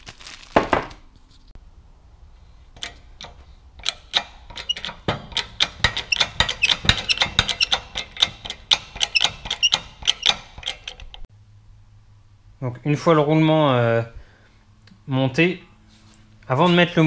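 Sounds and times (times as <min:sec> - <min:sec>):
sharp metallic clicks: 0:02.8 - 0:11.3
short high squeaks: 0:03.9 - 0:11.2.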